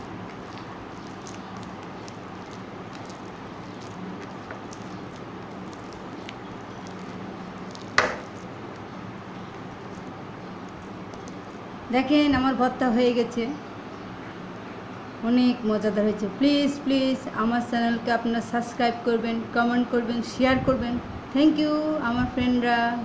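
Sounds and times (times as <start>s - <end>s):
hand squishing soft paste: 0.0s - 11.8s.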